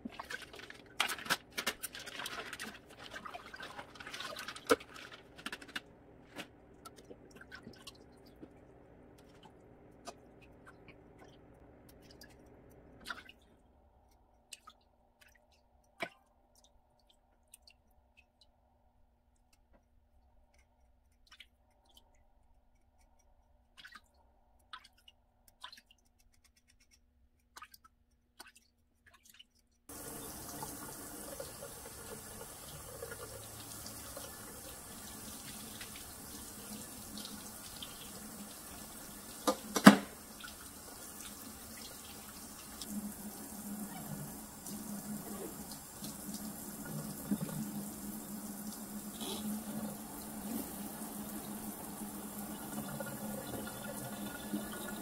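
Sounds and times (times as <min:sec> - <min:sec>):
faint clicks and scrapes: 0:19.4 - 0:29.9
faucet water splashing into sink: 0:27.5 - 0:55.0.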